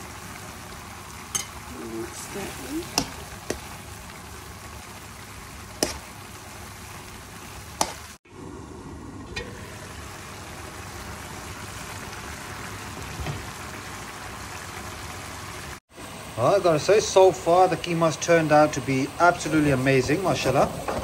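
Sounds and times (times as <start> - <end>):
meat sizzling in metal pan: 0.0 - 8.2, 9.1 - 21.0
metal spoon clinking on pan: 1.3 - 1.6.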